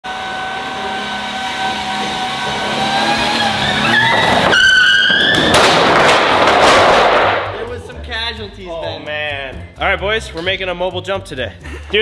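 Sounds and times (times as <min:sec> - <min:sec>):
truck engine whine: 0:00.0 - 0:05.2.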